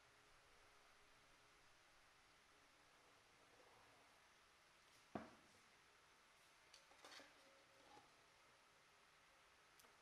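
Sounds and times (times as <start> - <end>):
faint clicks and scrapes: 6.4 - 8.3.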